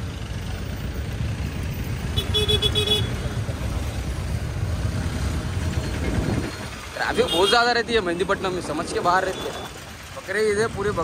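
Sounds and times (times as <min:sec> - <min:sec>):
vehicle horn toots: 0:02.2 - 0:03.2.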